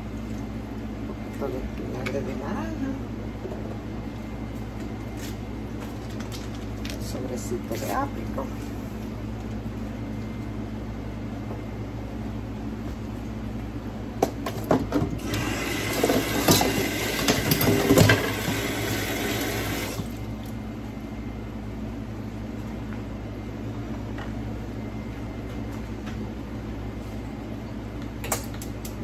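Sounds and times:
low kitchen hum: 0.0 - 29.0.

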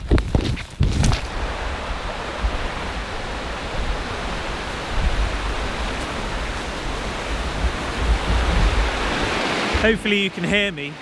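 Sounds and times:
water rushing: 1.1 - 11.0.

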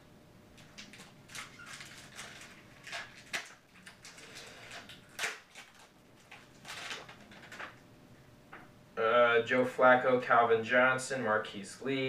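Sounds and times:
card wrapper rustling and crinkling: 0.6 - 7.8.

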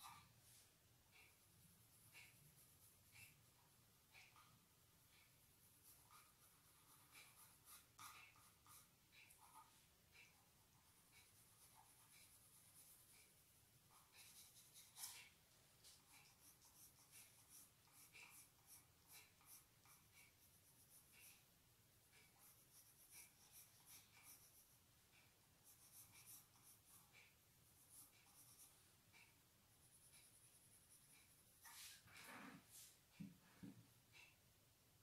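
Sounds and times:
crayon scratching on paper: 1.1 - 3.5, 5.2 - 21.5, 22.2 - 24.8, 25.6 - 32.2.

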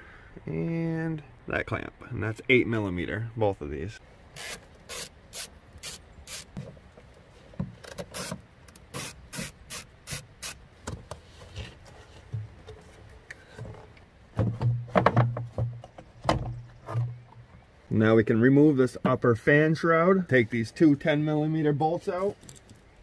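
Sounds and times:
hand ratchet strokes: 4.4 - 6.6.

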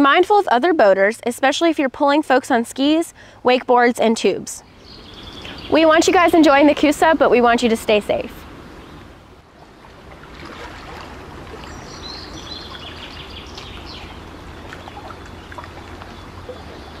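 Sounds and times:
rushing flowing water: 8.6 - 17.0
high bird chirps: 11.6 - 14.2.

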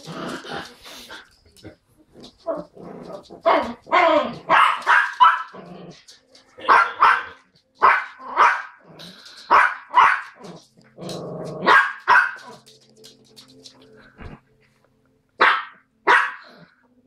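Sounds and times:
dog growling: 0.0 - 4.4, 5.5 - 6.2, 10.4 - 11.7
small dogs barking: 3.4 - 5.9, 6.6 - 10.6, 11.6 - 12.6, 15.4 - 16.7.

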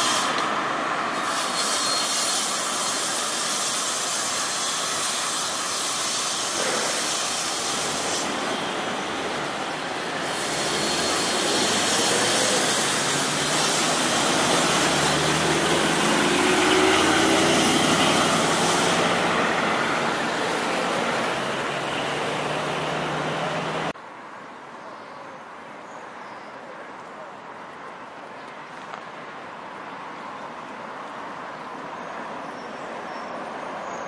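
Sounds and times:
quiet street background: 0.0 - 34.0
truck engine and tyres passing: 4.9 - 24.0
cars driving past: 8.0 - 24.0.

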